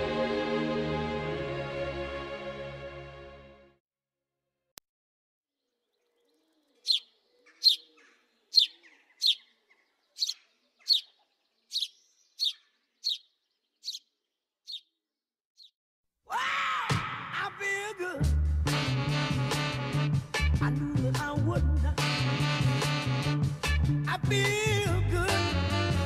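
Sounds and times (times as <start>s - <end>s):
small bird chirping: 5.6s - 15.8s.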